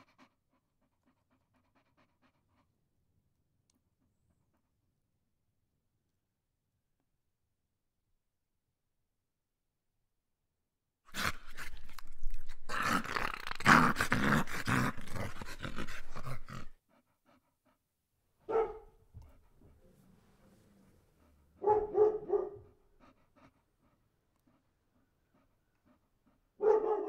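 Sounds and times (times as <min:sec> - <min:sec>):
dog growling and barking: 0:11.1 - 0:16.8.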